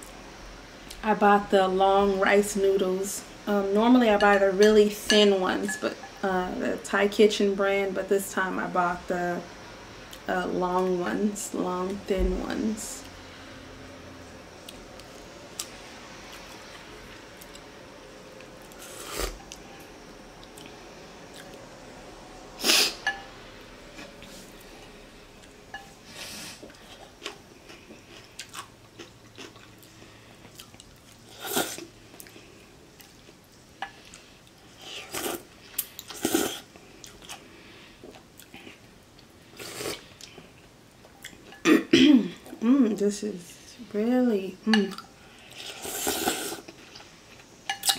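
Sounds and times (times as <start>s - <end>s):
person chewing: 26.6s - 32.4s
person slurping noodles: 36.1s - 36.6s, 45.6s - 46.7s.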